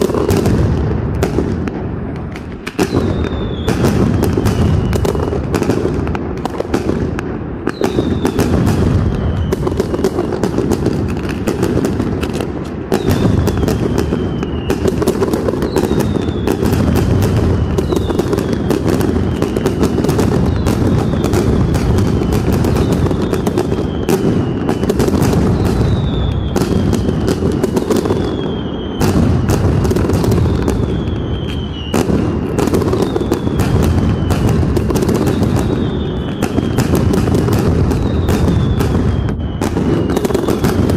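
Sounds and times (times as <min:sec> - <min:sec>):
firecrackers exploding: 0:00.0 - 0:40.9
short falling whistles: 0:02.8 - 0:05.2, 0:30.6 - 0:32.0, 0:38.0 - 0:40.8.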